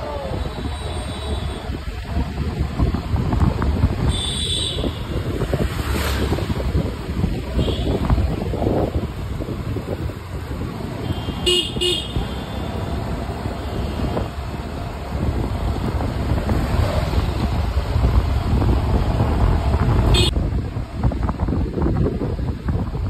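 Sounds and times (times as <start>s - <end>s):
road noise rumble: 0.0s - 23.0s
wind buffeting microphone: 0.0s - 23.0s
vehicle horn toots: 4.1s - 5.2s, 7.6s - 8.0s, 11.0s - 12.8s, 20.1s - 20.3s.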